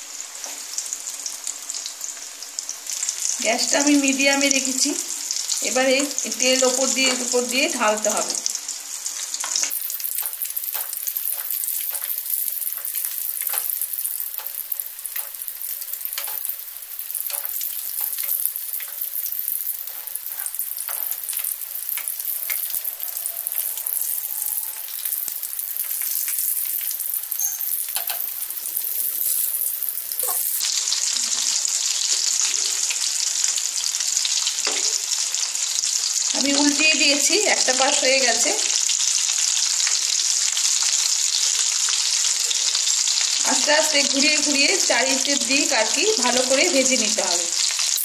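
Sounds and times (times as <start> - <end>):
food deep-frying with crackling pops: 0.0 - 48.0.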